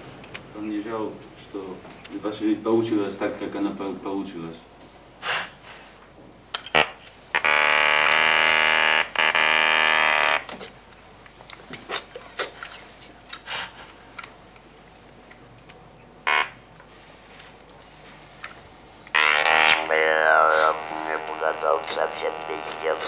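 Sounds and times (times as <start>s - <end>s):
electrolarynx buzzing: 6.6s - 10.5s, 16.2s - 16.8s, 18.7s - 23.0s.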